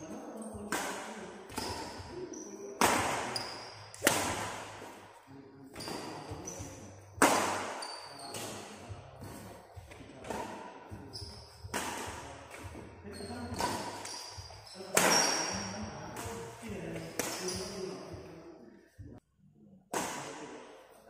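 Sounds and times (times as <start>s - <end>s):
rackets striking shuttlecock: 0.7s - 2.1s, 2.8s - 5.0s, 5.7s - 11.0s, 11.6s - 12.8s, 13.5s - 17.8s
shoes squeaking on court: 3.3s - 4.0s, 5.7s - 6.9s, 7.7s - 9.5s, 11.0s - 11.7s, 12.6s - 16.4s, 17.0s - 18.2s.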